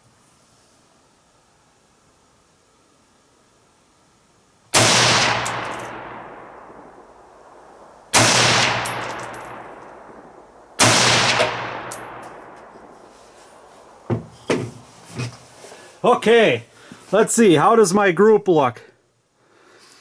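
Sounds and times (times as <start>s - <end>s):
rifle shots with echo: 4.8s - 14.1s.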